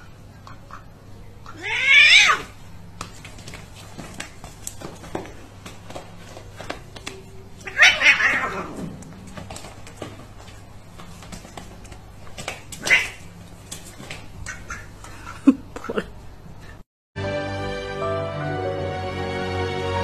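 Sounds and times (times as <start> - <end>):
animal cry: 1.4 - 2.6, 7.6 - 8.8, 12.8 - 13.4.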